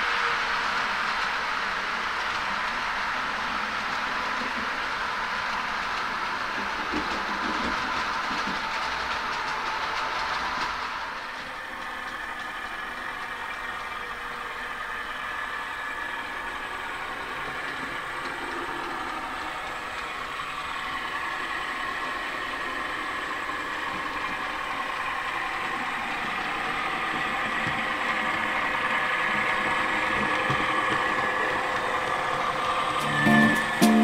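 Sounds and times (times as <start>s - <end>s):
model train wheels rolling: 0.0s - 34.0s
model diesel engine sound: 11.0s - 34.0s.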